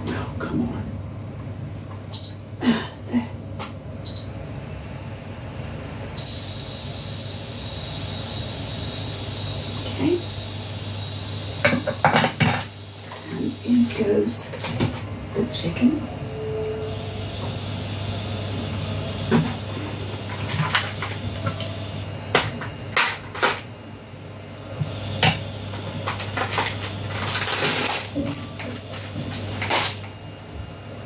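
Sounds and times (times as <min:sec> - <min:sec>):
steady low hum: 0:00.0 - 0:31.0
plastic packet rustling: 0:25.9 - 0:30.2.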